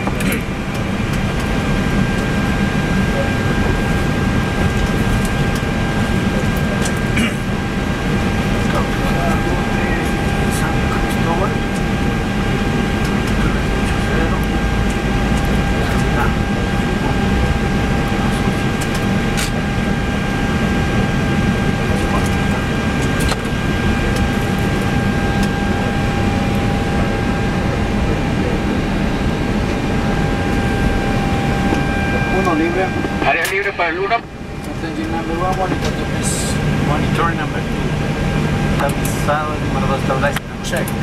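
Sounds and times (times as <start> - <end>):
cockpit rumble: 0.0 - 41.0.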